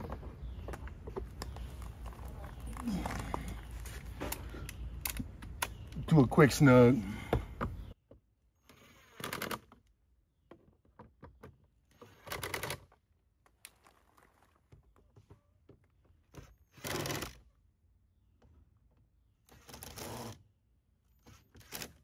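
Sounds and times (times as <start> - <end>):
handling clicks and knocks: 0.0 - 6.1.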